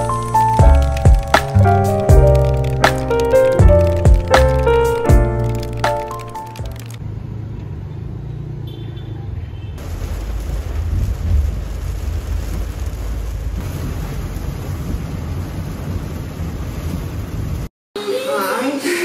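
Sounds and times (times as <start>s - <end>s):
heavy rain beating on car: 0.0s - 4.4s, 9.8s - 17.7s
car road rumble: 9.8s - 17.7s.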